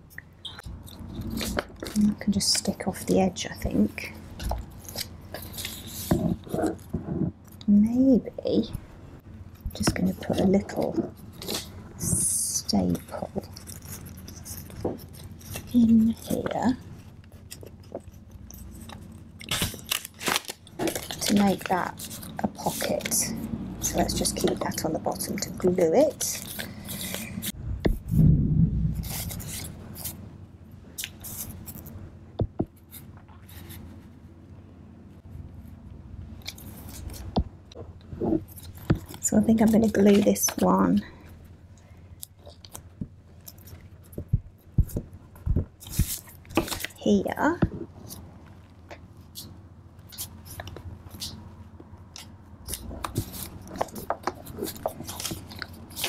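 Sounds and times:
paper rustling and rubbing: 0.6 - 7.3, 9.6 - 30.2, 31.0 - 32.0, 32.7 - 34.2, 36.4 - 37.4, 42.4 - 48.6, 49.2 - 56.0.

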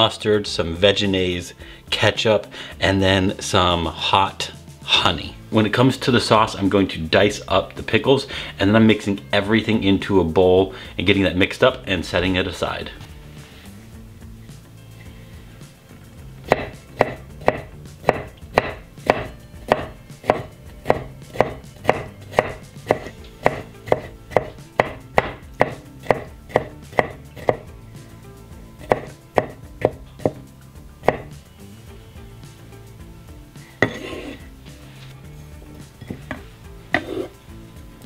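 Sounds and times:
knife chopping on wooden board: 16.5 - 27.7, 28.8 - 31.4, 33.8 - 34.4, 36.0 - 37.3.

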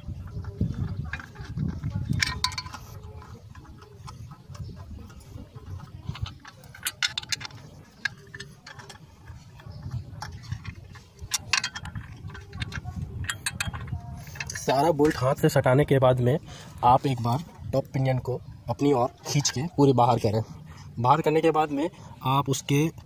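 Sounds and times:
metallic clicks of bolts threading: 6.1 - 9.6, 10.2 - 15.2.

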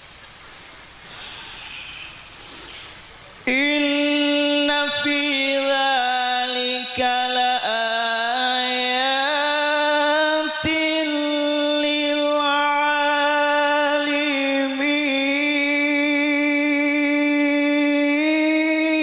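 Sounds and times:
man reciting melodically into microphone: 3.3 - 19.0.

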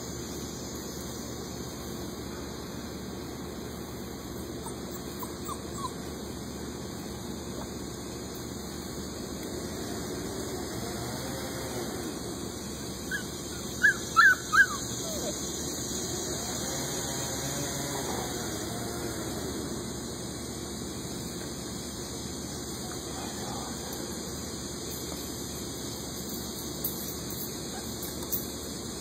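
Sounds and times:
puppy yelping: 4.6 - 6.1, 13.1 - 15.4.

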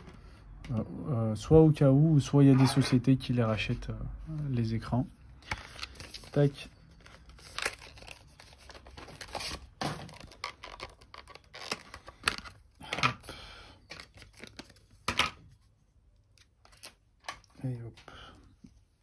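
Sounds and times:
packaging crinkling and tearing: 5.4 - 12.7, 13.8 - 15.1.

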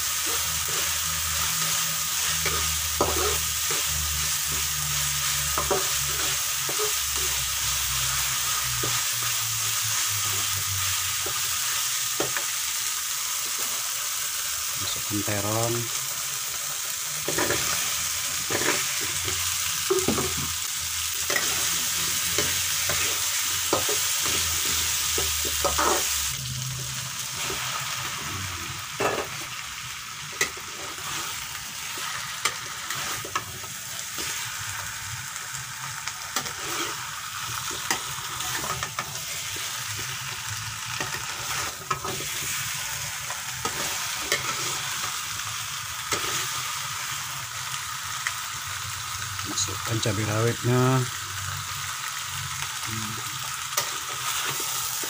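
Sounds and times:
paste sizzling in hot oil: 0.0 - 55.0
metal spatula scraping pan: 0.2 - 7.4, 36.4 - 37.0, 37.7 - 39.4, 43.6 - 44.9.

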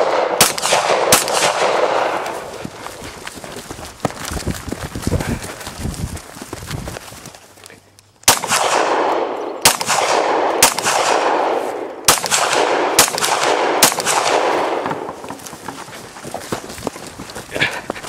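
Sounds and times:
pistol shots with echo: 0.0 - 2.4, 8.2 - 14.8.

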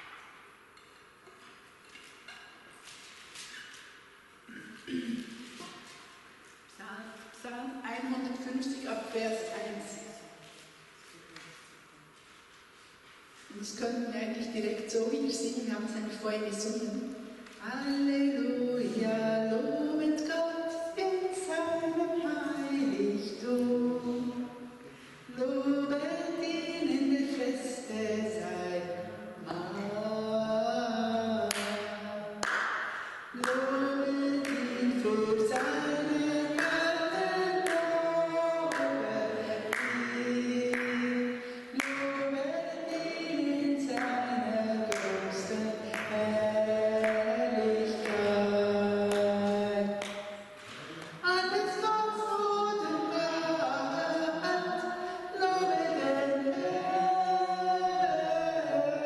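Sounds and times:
woman singing unaccompanied: 17.6 - 24.5, 25.3 - 32.4, 33.4 - 50.0.

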